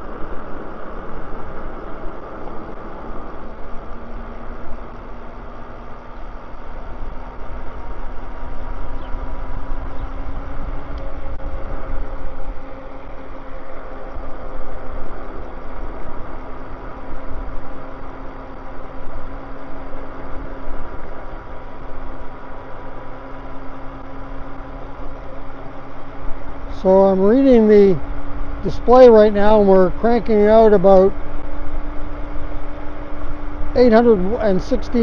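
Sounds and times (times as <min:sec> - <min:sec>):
wind rumbling on microphone: 0:00.0 - 0:28.9
electric motor whine: 0:00.0 - 0:35.0.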